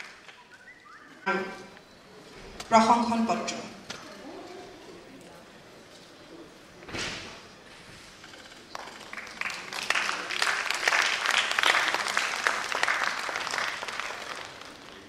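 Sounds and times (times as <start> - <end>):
audience applauding: 0.0 - 1.2, 8.5 - 15.0.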